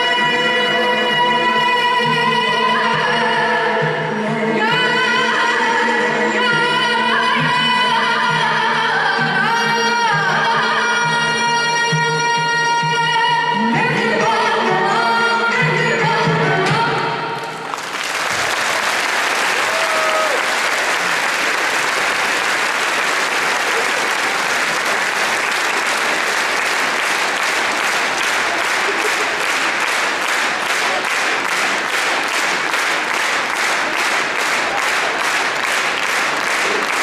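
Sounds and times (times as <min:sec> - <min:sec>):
audience applauding: 0:17.4 - 0:37.0
rhythmic clapping in unison: 0:17.4 - 0:37.0.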